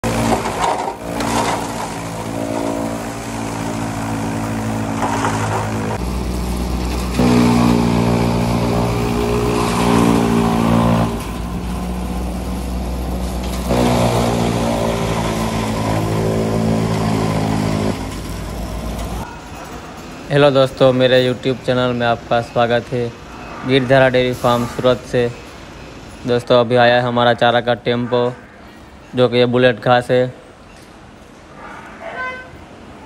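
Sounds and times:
chaff cutter chopping grass: 0.0 - 19.3
tractor engine under load: 0.0 - 26.5.

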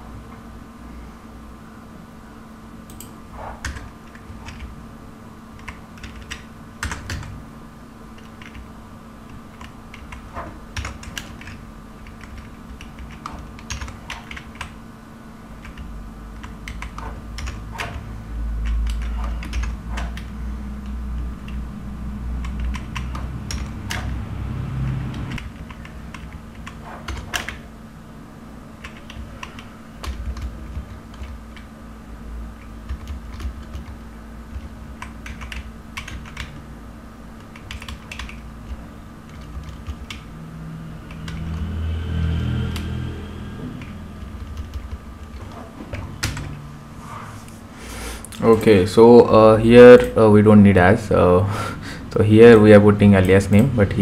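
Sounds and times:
steady low hum: 0.0 - 54.0
computer keyboard typing: 2.9 - 4.8, 5.6 - 7.4, 8.1 - 14.8, 15.6 - 21.6, 22.3 - 27.7, 28.8 - 31.8, 32.6 - 36.7, 37.4 - 40.3, 41.0 - 41.7, 43.8 - 46.6
low rumble: 38.5 - 47.4.

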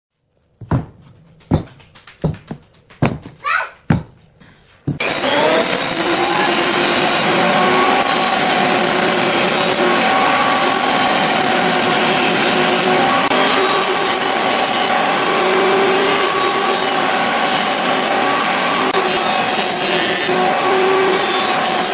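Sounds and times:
wooden strips knocking: 0.5 - 5.1
jointer planing boards: 4.9 - 21.9.

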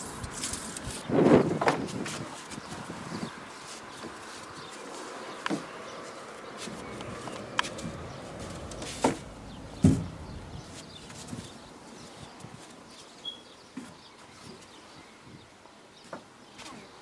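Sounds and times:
outdoor background hiss: 0.0 - 17.0
plastic chair knocking and clattering: 8.8 - 10.2.

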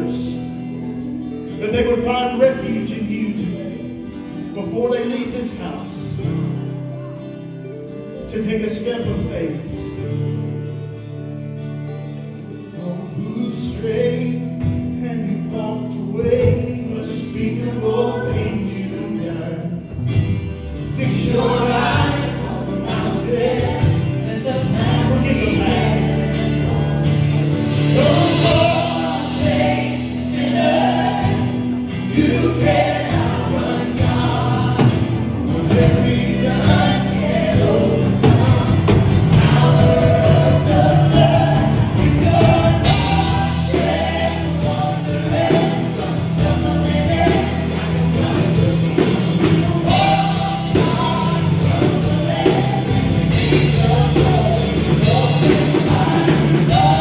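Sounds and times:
group singing: 0.0 - 0.9, 12.7 - 57.0
acoustic and electric guitars: 0.0 - 57.0
bass: 0.0 - 57.0
piano: 0.0 - 57.0.

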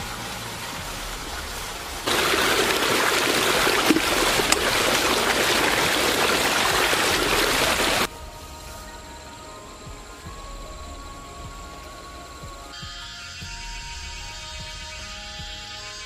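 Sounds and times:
river water running: 0.0 - 12.8.

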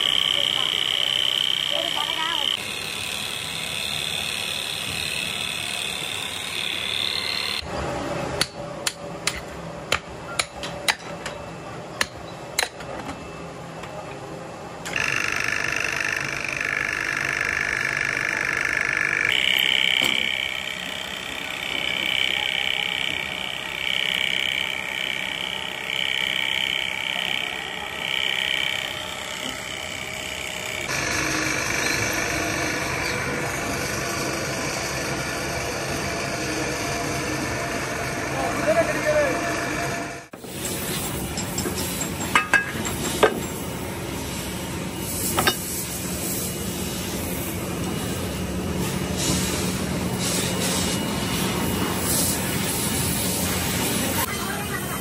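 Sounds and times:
electric motor whining: 0.0 - 7.7, 14.9 - 40.3.

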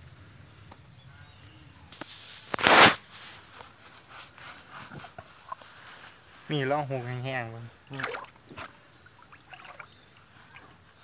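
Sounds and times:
short loud burst of noise: 2.4 - 3.1.

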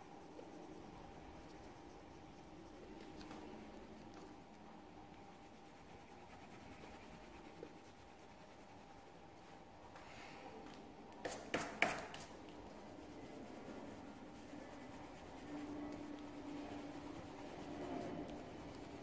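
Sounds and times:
pencil scratching on paper: 5.1 - 9.2, 12.8 - 19.0.

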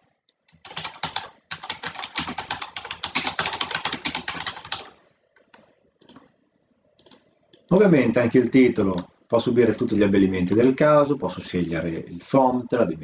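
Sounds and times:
typing on computer keyboard: 0.5 - 6.3, 7.0 - 9.1.

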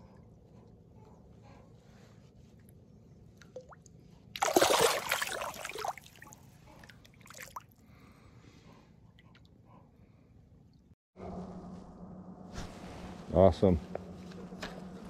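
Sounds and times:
small water splashes: 3.4 - 7.8
fish splashing hard: 4.4 - 6.3.

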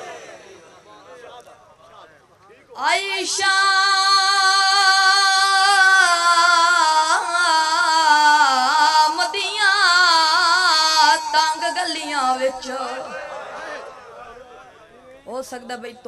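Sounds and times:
boy singing into a microphone: 2.8 - 13.2, 15.3 - 16.0.

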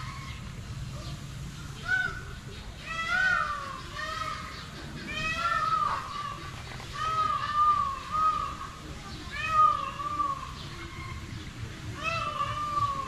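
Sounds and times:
meow-like animal calls: 2.8 - 4.4, 5.0 - 8.7, 9.3 - 11.2, 11.9 - 13.0.

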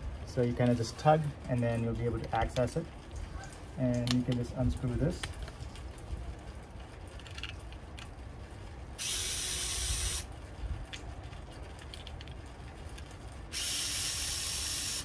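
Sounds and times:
electric screwdriver running: 9.0 - 10.3, 13.5 - 15.0.

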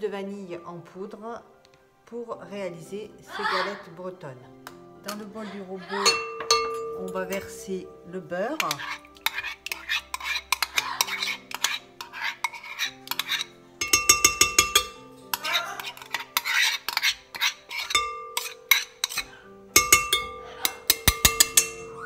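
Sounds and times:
soft background music: 0.0 - 22.0
utensil scraping bowl: 6.0 - 21.9
utensil clinking against bowls: 6.0 - 22.0.

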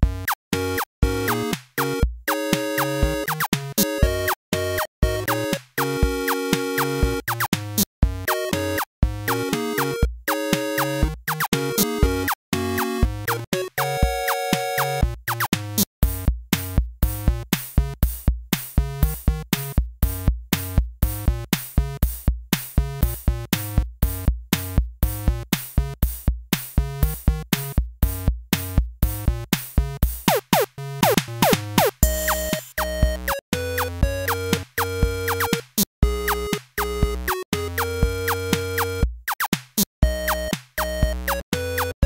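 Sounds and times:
music with fast beat: 30.1 - 42.0.

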